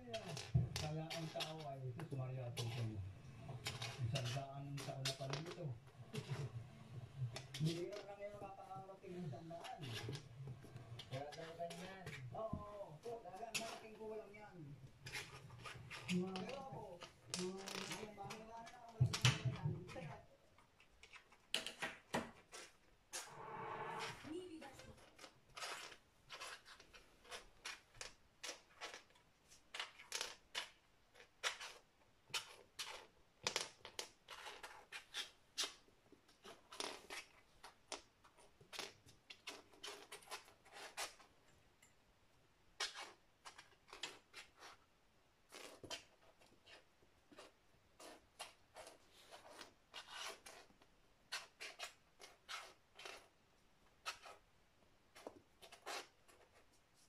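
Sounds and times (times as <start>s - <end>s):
kitten claws scuffing on floor: 0.1s - 8.9s, 24.9s - 41.3s, 45.5s - 53.3s.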